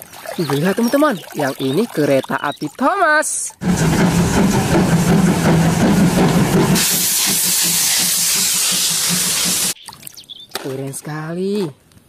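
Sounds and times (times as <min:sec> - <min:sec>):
hissing steam: 0:03.6 - 0:09.8
steam locomotive running: 0:03.6 - 0:09.8.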